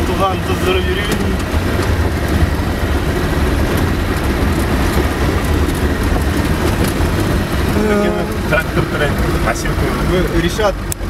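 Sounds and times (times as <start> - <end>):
car body clicks and rattles: 0.0 - 7.8
car engine running: 0.0 - 11.0
road noise: 0.0 - 11.0.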